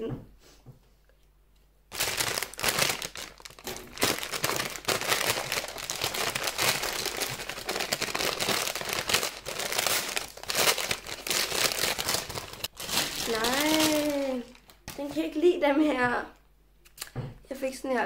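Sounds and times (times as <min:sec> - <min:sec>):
paper bag rustling: 0:01.9 - 0:15.1.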